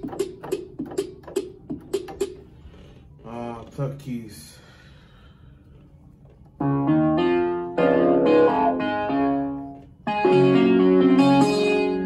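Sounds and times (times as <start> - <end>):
sustained piano-like chords: 6.6 - 12.0.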